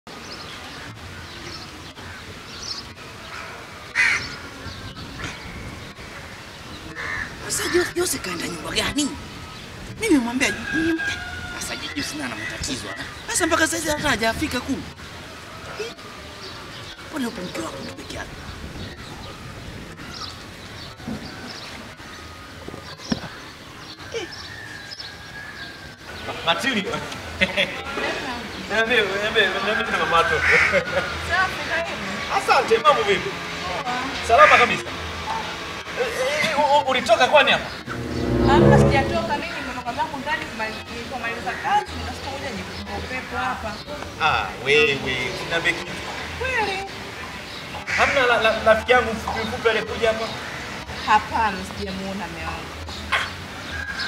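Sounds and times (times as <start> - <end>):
crow cawing: 4.0 - 4.3, 7.0 - 8.4, 30.4 - 30.8, 47.9 - 48.3.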